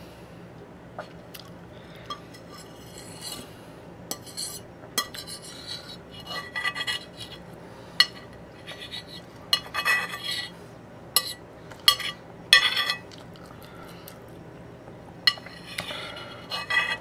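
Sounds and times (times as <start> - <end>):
fork scraping ceramic plate: 2.1 - 3.5, 4.1 - 10.6, 11.2 - 13.1, 15.3 - 17.0.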